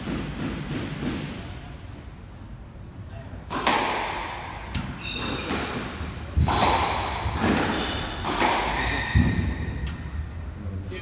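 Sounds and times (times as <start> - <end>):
squash ball hits echoing: 0.0 - 1.8, 3.5 - 10.3.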